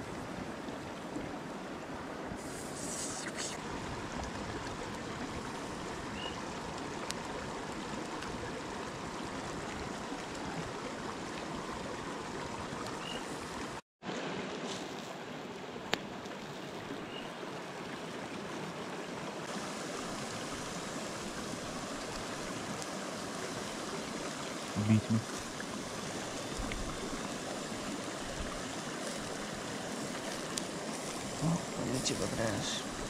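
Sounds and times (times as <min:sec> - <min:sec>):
river water flowing: 0:00.0 - 0:33.0.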